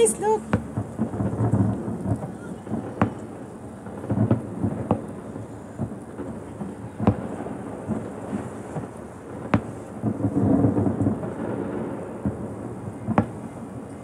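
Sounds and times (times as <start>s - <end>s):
fireworks exploding: 0.0s - 14.0s.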